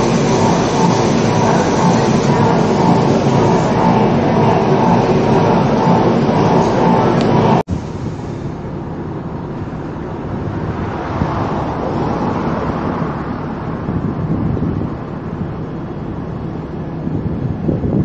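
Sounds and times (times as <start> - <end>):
car engine running: 0.0 - 7.7
road traffic: 0.0 - 18.0
wind on microphone: 10.0 - 18.0.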